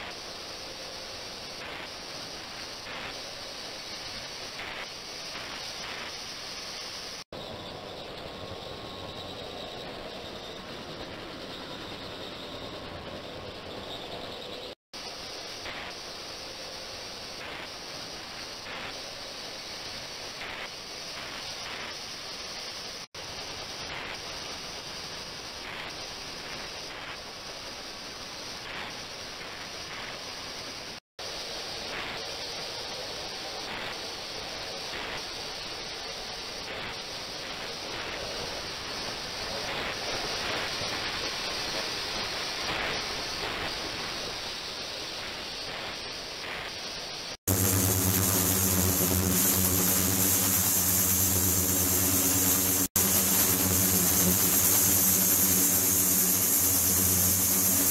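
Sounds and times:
water hissing in ultrasonic tank: 0:47.5 - 0:57.9.

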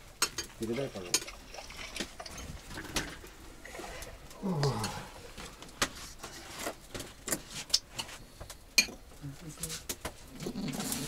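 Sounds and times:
tableware and bottles clinking: 0:08.8 - 0:09.1.

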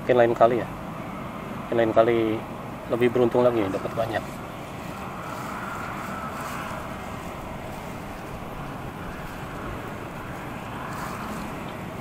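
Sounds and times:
wind noise on microphone: 0:03.6 - 0:12.0.

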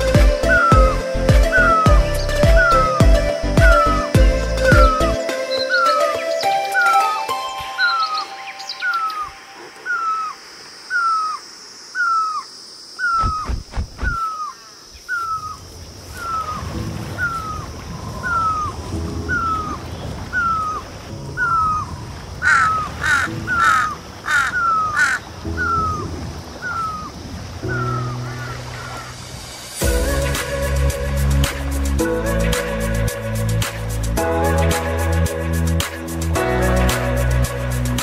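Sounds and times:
crow cawing: 0:22.4 - 0:26.0, 0:27.7 - 0:29.1.

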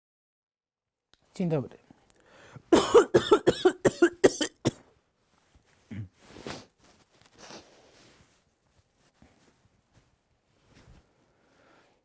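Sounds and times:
soft breathing: 0:01.9 - 0:02.7, 0:06.2 - 0:08.4, 0:10.6 - 0:12.0
man coughing: 0:02.7 - 0:04.8
throat sound: 0:05.9 - 0:06.2.

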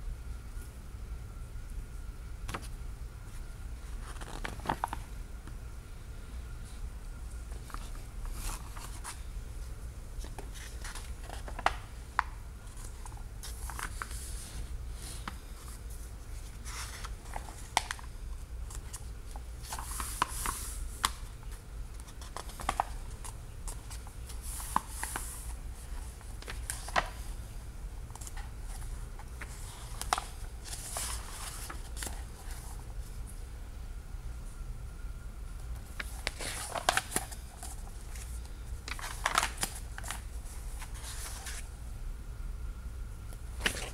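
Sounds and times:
steady low hum: 0:00.0 - 0:43.9
book pages rustling: 0:02.4 - 0:05.1, 0:07.5 - 0:09.3, 0:10.2 - 0:27.4, 0:28.1 - 0:33.2, 0:35.8 - 0:41.7, 0:43.6 - 0:43.9.

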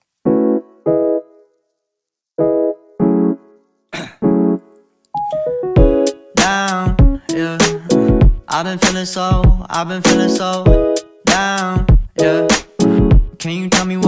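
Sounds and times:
drum hits: 0:05.8 - 0:12.1.

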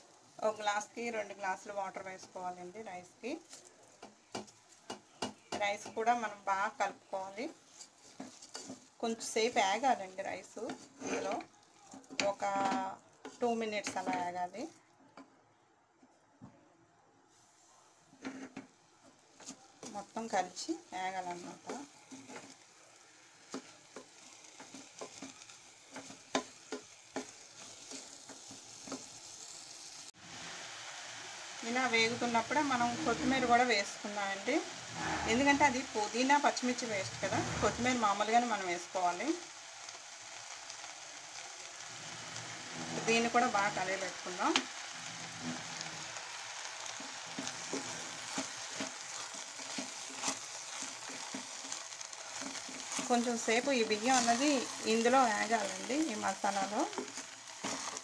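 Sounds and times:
faint sizzle: 0:00.0 - 0:58.0
spatula scraping a pot: 0:07.6 - 0:08.9, 0:10.6 - 0:14.1, 0:34.8 - 0:35.8, 0:47.0 - 0:58.0
spatula scraping rice: 0:47.0 - 0:53.3, 0:56.9 - 0:58.0.

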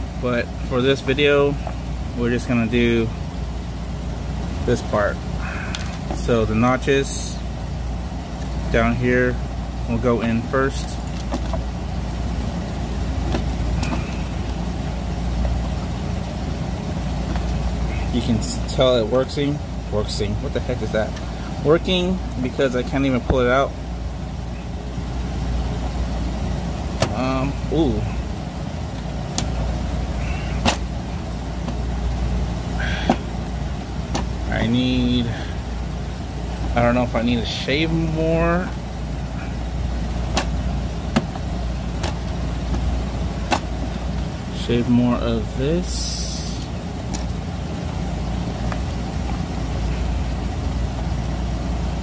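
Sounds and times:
steady low rumble: 0:00.0 - 0:52.0.

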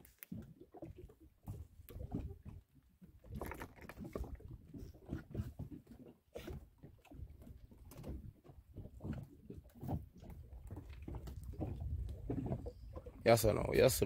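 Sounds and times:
fishing line dragging over boat: 0:00.0 - 0:08.2.

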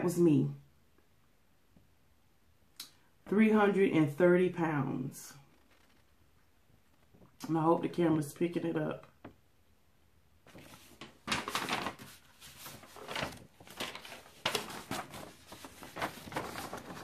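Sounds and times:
paper rustling: 0:10.4 - 0:17.0.

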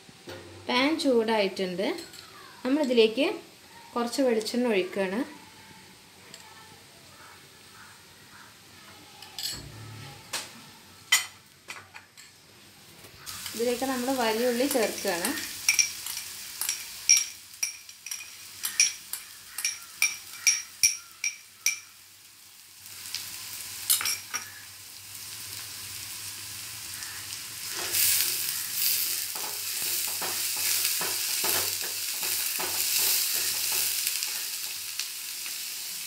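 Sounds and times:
onion sizzling in oil: 0:00.2 - 0:11.6, 0:12.4 - 0:36.0
spatula scraping pan: 0:27.6 - 0:34.5.

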